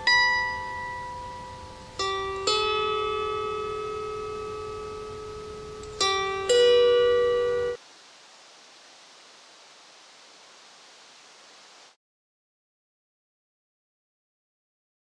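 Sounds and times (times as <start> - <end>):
harp plucked notes: 0.0 - 7.8.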